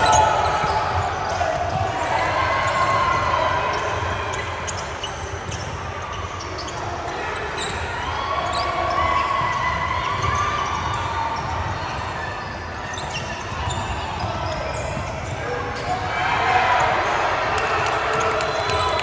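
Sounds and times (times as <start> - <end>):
basketball bouncing on gym floor: 9.4 - 15.9.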